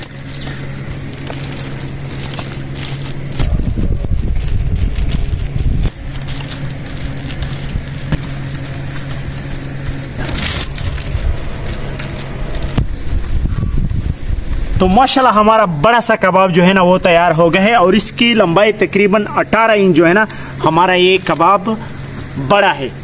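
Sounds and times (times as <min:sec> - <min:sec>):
hands squishing meat mixture: 0:00.0 - 0:13.4
aluminium foil crinkling: 0:00.0 - 0:14.8, 0:20.7 - 0:22.4
low rumble: 0:00.0 - 0:15.8
steady low hum: 0:00.0 - 0:23.0.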